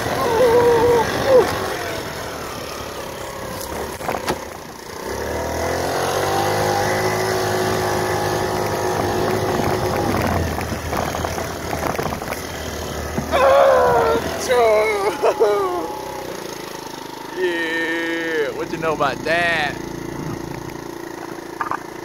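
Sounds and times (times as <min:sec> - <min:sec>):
scooter engine revving: 0:00.0 - 0:22.0
engine pops: 0:03.5 - 0:04.7, 0:09.2 - 0:13.4, 0:20.0 - 0:22.0.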